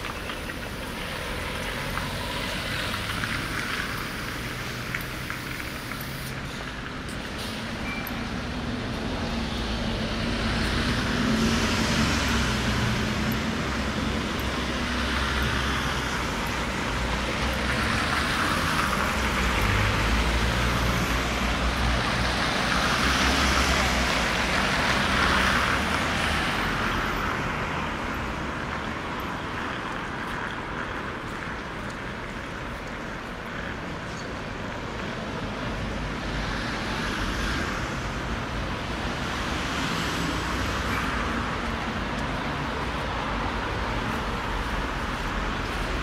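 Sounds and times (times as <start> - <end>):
vehicles passing: 0.0 - 46.0.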